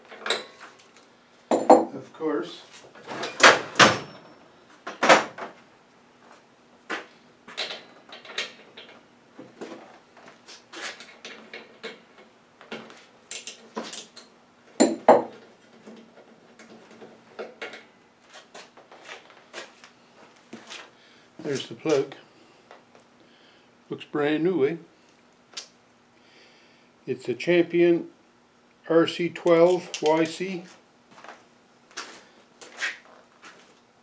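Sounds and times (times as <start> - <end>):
metal hand tools clinking: 29.5 - 30.4.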